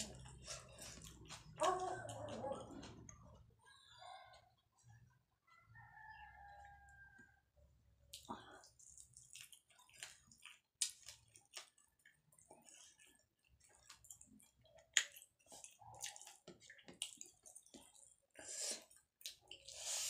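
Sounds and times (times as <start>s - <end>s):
chewing and mouth smacks: 0.0s - 3.4s, 8.0s - 20.0s.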